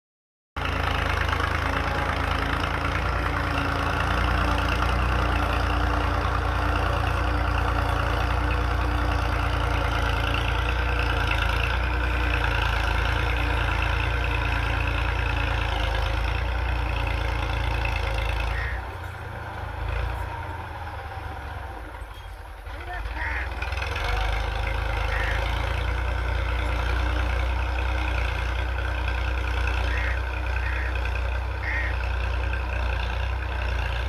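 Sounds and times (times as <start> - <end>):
tractor diesel engine running: 0.6 - 34.0.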